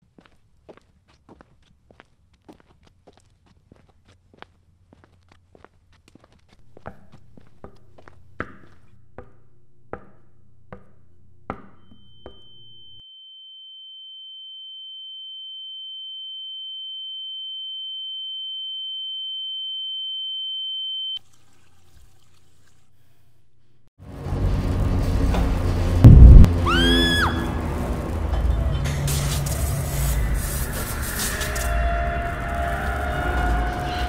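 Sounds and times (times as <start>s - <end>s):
low hum: 23.4s - 34.0s.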